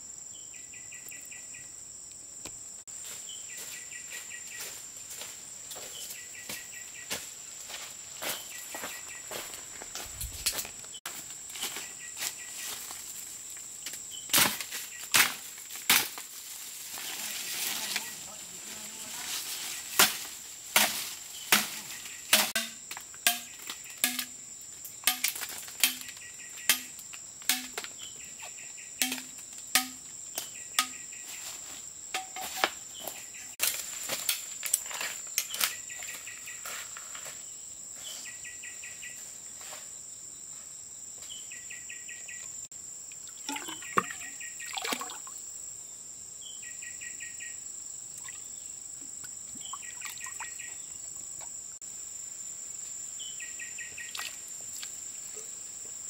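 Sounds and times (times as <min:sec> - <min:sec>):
high insect drone: 0:00.0 - 0:56.0
sharp knocks: 0:29.0 - 0:30.0.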